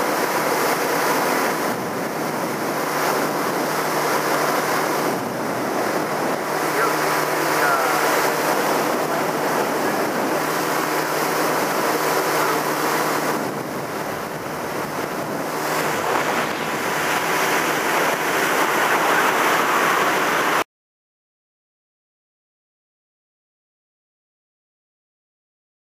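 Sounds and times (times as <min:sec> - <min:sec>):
outboard motor humming: 0:00.0 - 0:20.6
rushing water from boat: 0:00.0 - 0:20.6
wind: 0:00.0 - 0:20.6.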